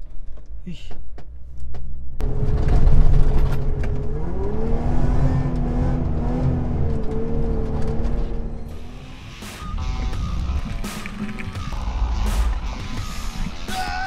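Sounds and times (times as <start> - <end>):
engine revving under load: 2.2 - 9.9.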